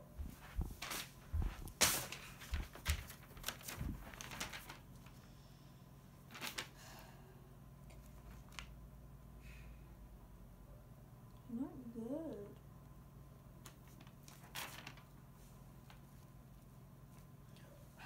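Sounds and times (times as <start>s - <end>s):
paper rustling: 0.2s - 5.3s, 6.2s - 6.8s, 7.9s - 8.8s, 13.6s - 17.3s.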